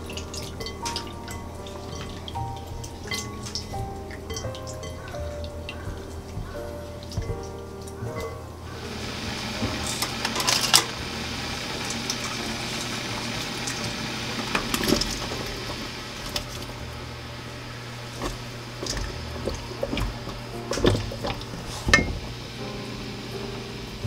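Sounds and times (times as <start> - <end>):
water boiling and bubbling: 0.0 - 24.0.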